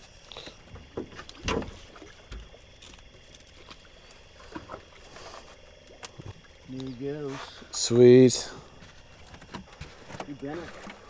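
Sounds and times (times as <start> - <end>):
water sounds: 0.0 - 11.0
small knocks on boat: 0.7 - 2.6.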